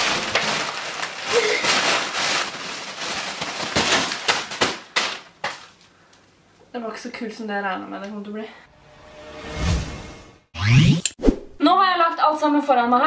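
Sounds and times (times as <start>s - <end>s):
plastic bag tearing and crackling: 0.0s - 5.8s.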